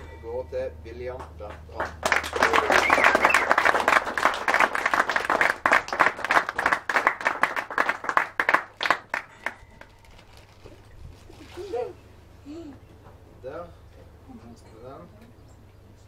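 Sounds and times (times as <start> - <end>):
people clapping: 1.1 - 9.9.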